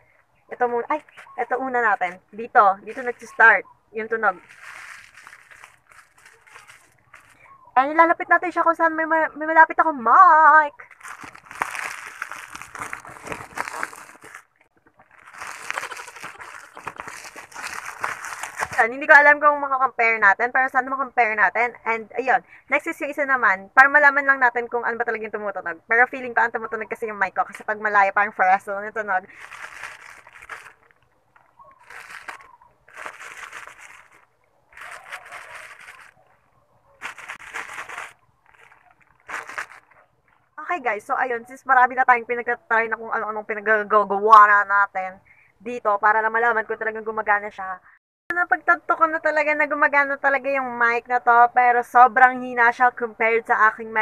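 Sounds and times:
paper being scrunched: 2.9 - 3.4, 4.3 - 7.4, 10.8 - 18.9, 29.3 - 31.0, 31.8 - 36.3, 37.0 - 40.0
plastic packaging crinkling: 4.3 - 7.5, 10.8 - 18.8, 29.3 - 40.4.

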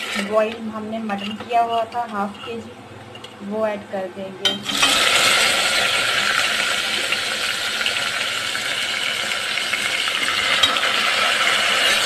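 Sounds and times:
meat sizzling in hot oil: 0.0 - 0.3, 4.6 - 12.0.

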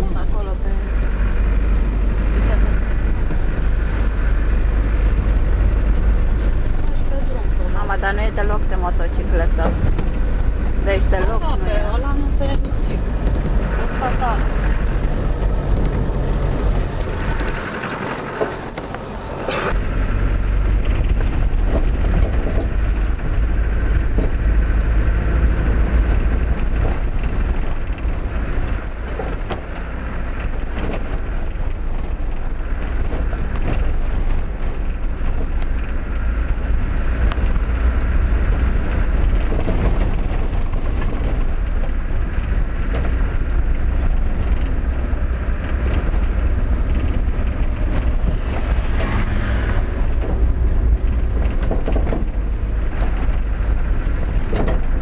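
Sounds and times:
knocks and rattles over bumps: 0.0 - 55.0
vehicle engine and tyres rumbling: 0.0 - 55.0.

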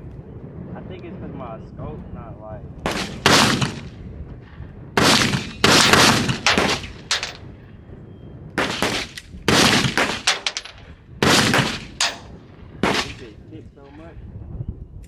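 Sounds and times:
echoing gunshots: 2.8 - 7.4, 8.6 - 13.4.

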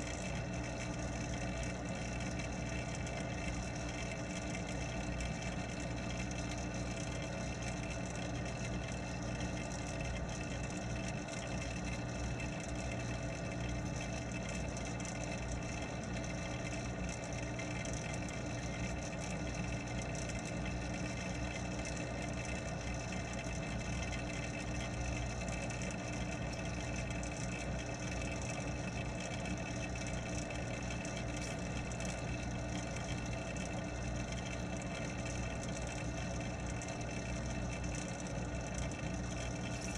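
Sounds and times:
pond pump motor humming underwater: 0.0 - 39.9.

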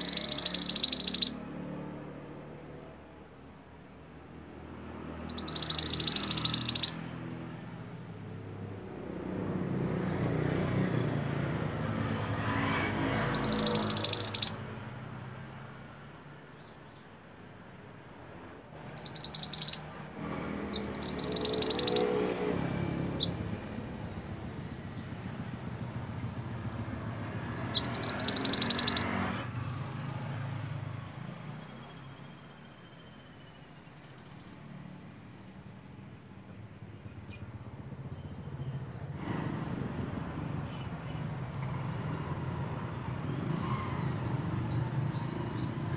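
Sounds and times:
bird trilling song: 0.0 - 1.5, 5.1 - 7.3, 12.8 - 14.8, 16.6 - 29.3, 30.1 - 35.2, 35.8 - 39.1, 40.0 - 45.9.

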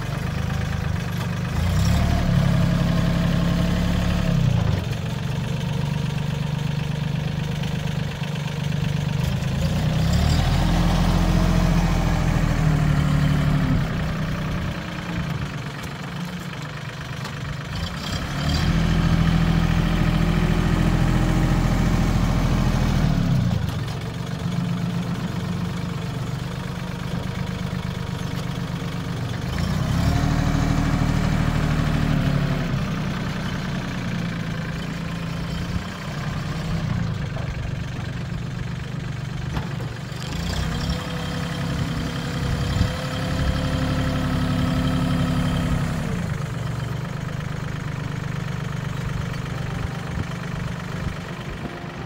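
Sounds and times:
tractor diesel engine revving: 0.0 - 52.0.

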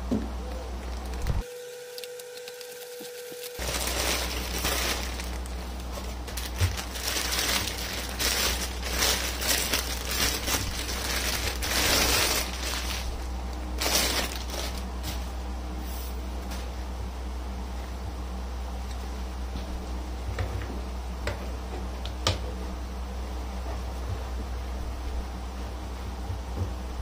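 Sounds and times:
plastic packaging crinkling: 0.3 - 14.9.

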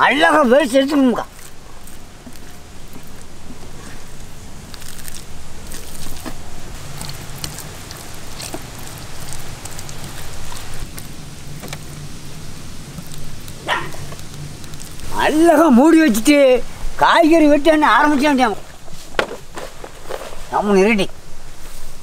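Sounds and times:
low hum: 0.0 - 22.0
steady hiss: 0.0 - 22.0
hands squelching paste into fish: 0.9 - 15.2
wet clicks: 0.9 - 15.4.

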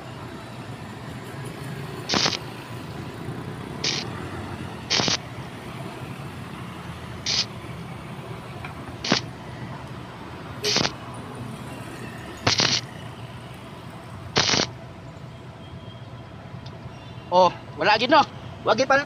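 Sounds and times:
arc welding crackle: 2.0 - 2.5, 3.8 - 4.1, 4.9 - 5.2, 7.3 - 7.5, 9.0 - 9.3, 10.6 - 11.0, 12.5 - 12.9, 14.4 - 14.7.

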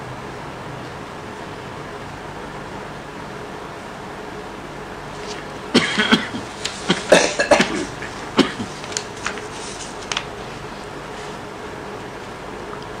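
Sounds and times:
steady background hum: 0.0 - 13.0
person coughing: 5.7 - 8.8.

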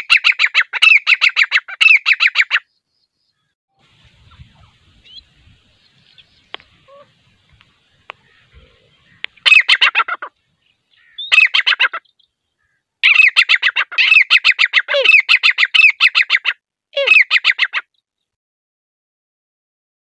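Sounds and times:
francolin calling: 4.2 - 17.8.

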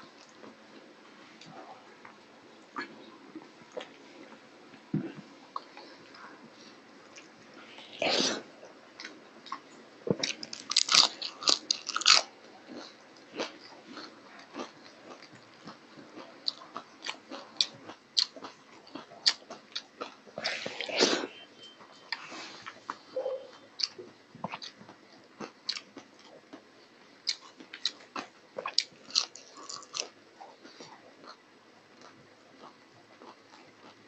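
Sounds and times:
mouth clicks and chewing: 23.8 - 34.0.

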